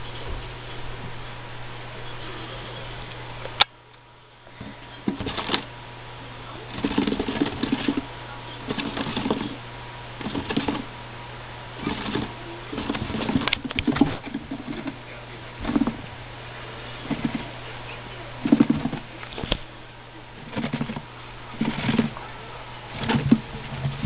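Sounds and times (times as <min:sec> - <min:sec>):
steady background hum: 0:00.0 - 0:24.0
rodent grunting: 0:06.4 - 0:11.0, 0:11.7 - 0:24.0.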